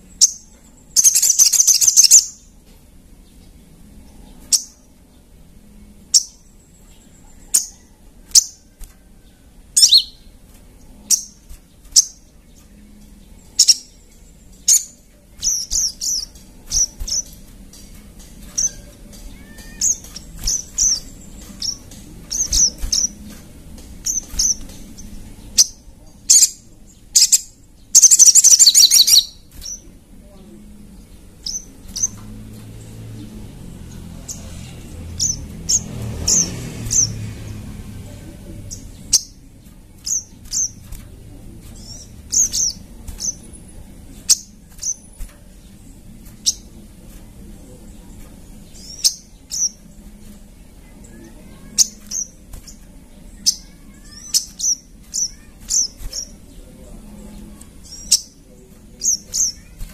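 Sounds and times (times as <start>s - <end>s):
bird chirping: 0.0s - 59.9s.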